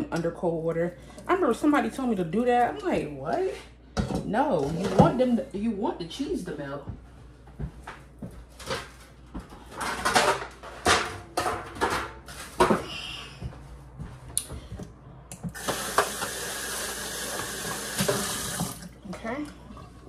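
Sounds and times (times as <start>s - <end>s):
cookware clattering in sink: 4.0s - 5.4s, 9.7s - 12.9s
tap water running into sink: 15.5s - 20.0s.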